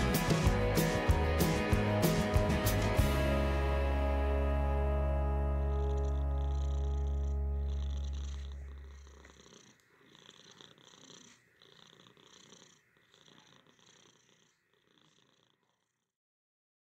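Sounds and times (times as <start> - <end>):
background music: 0.0 - 8.1
cat purring: 0.0 - 16.2.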